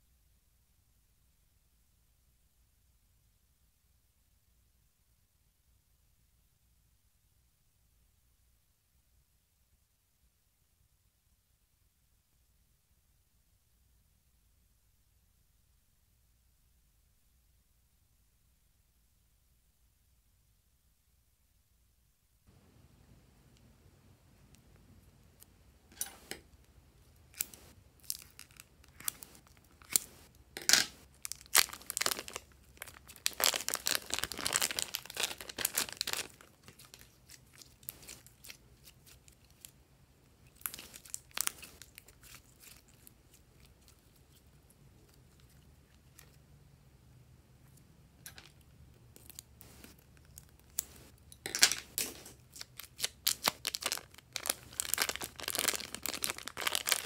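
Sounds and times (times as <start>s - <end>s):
slime crackling: 27.2s - 39.8s, 40.4s - 46.1s, 49.2s - 57.0s
plastic bags crinkling: 27.3s - 39.7s, 40.4s - 43.1s, 49.3s - 57.0s.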